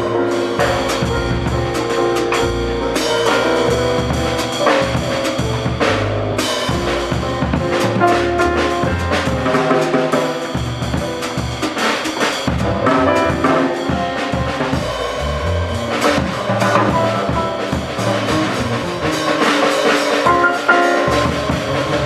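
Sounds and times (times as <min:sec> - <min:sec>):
bass: 0:00.0 - 0:22.0
drum kit and cymbals: 0:00.0 - 0:22.0
grand piano chords: 0:00.0 - 0:22.0.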